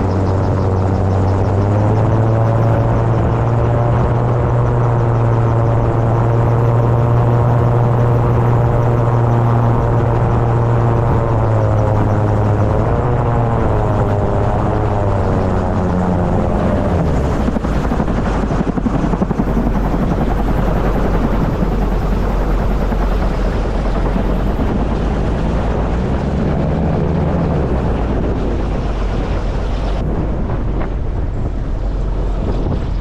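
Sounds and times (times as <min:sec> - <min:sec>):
engine and propeller running: 0:00.0 - 0:33.0
low hum: 0:00.0 - 0:33.0
wind rushing: 0:06.7 - 0:33.0.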